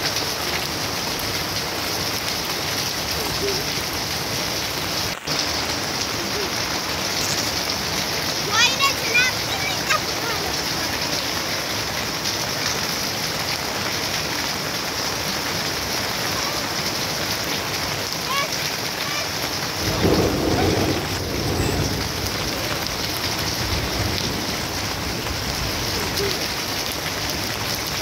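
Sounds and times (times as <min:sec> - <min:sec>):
rain on ground and foliage: 0:00.0 - 0:28.0
thunder rumble: 0:19.7 - 0:27.9.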